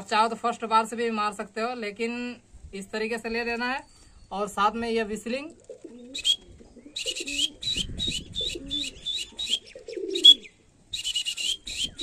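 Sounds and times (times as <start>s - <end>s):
plastic whistle pips: 11.0s - 11.9s.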